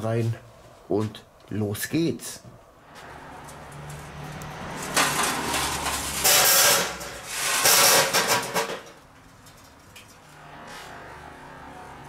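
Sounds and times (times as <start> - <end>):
charcoal clattering onto a grate: 3.8 - 9.8.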